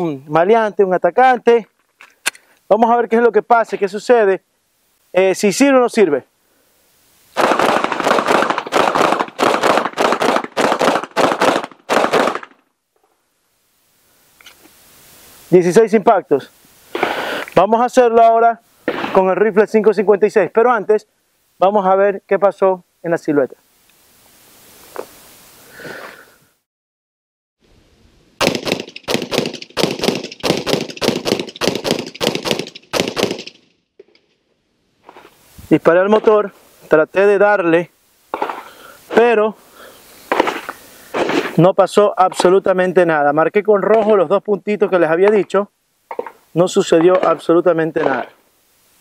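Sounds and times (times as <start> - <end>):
rapid pistol shots: 7.4 - 12.6, 28.4 - 33.7, 47.0 - 48.2.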